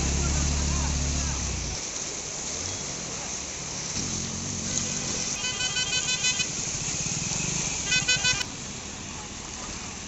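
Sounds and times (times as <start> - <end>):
floodwater rushing and splashing: 0.0 - 10.0
motorcycle engines running: 4.0 - 8.4
vehicle horn rapid beeps: 5.4 - 6.5, 7.8 - 8.4.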